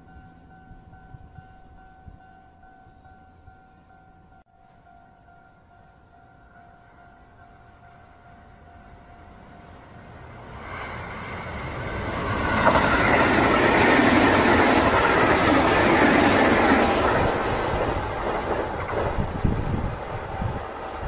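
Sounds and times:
electric train passing: 0:00.0 - 0:21.0
train wheels on rails: 0:07.4 - 0:21.0.

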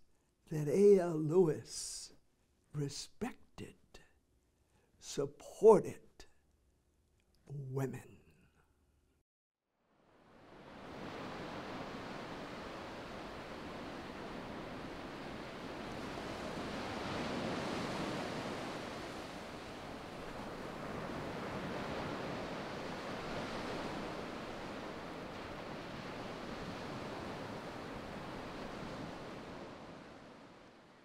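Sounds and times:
ocean surf washing onto beach: 0:10.2 - 0:31.0.

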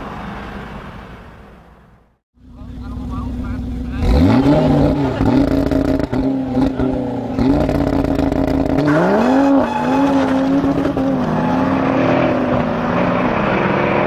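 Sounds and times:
car engine revving high: 0:03.0 - 0:14.0.

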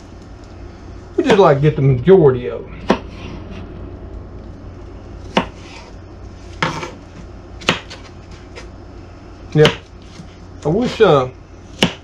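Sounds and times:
low steady hum: 0:00.0 - 0:12.0
knife chopping on cutting board: 0:02.8 - 0:03.4, 0:05.3 - 0:05.9, 0:06.6 - 0:07.0, 0:07.6 - 0:08.7, 0:09.6 - 0:11.0, 0:11.7 - 0:12.0.

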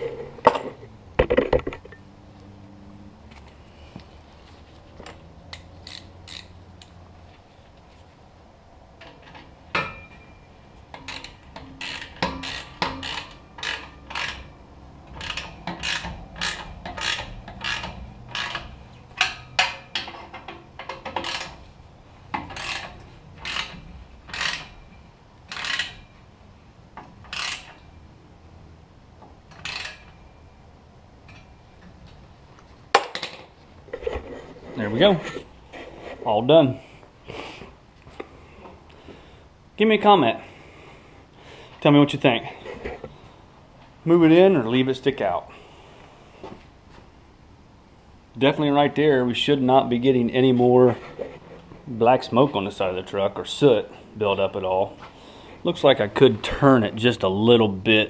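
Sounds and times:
ratchet wrench clicking: 0:05.5 - 0:06.9, 0:11.0 - 0:14.5, 0:15.1 - 0:20.1, 0:20.8 - 0:21.6, 0:22.4 - 0:24.8, 0:25.5 - 0:26.1, 0:27.3 - 0:27.8, 0:29.5 - 0:30.1.

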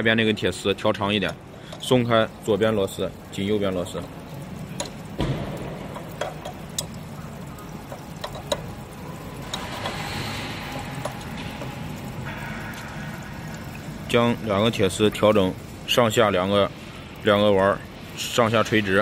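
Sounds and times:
machine humming: 0:01.3 - 0:19.0
metallic clicks and taps: 0:04.7 - 0:07.0, 0:07.6 - 0:08.8
rushing noise: 0:09.3 - 0:14.1.

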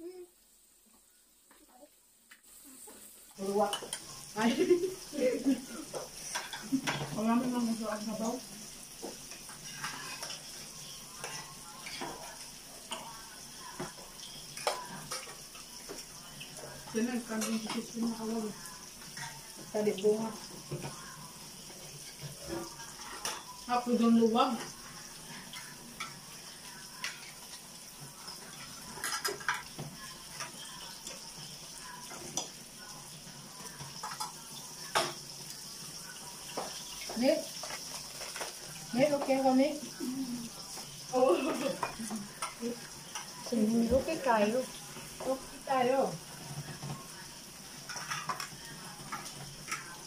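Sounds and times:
meat sizzling on grill pan: 0:02.2 - 0:50.0
utensils clinking on dishes: 0:03.4 - 0:04.8, 0:05.4 - 0:07.6, 0:09.0 - 0:20.0, 0:21.7 - 0:35.5, 0:36.1 - 0:39.5, 0:40.6 - 0:45.5, 0:46.4 - 0:50.0
metal spoon scraping pan: 0:09.3 - 0:12.2.

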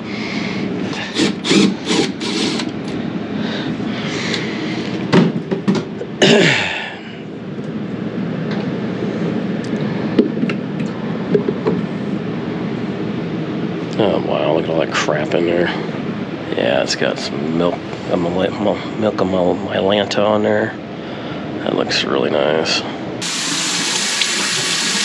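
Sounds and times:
furnace humming: 0:00.0 - 0:25.0
cordless drill whirring: 0:01.1 - 0:02.8.

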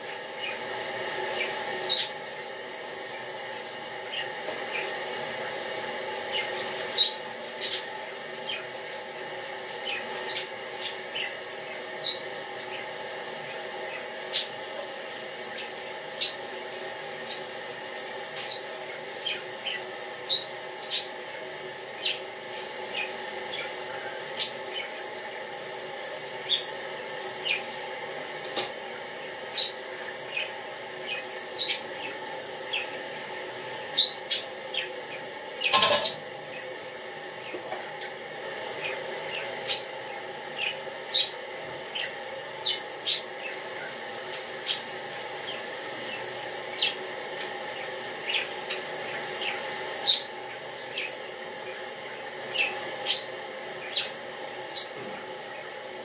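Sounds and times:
dishes washed at sink: 0:00.0 - 0:56.0
dishes clattering: 0:35.7 - 0:36.2.

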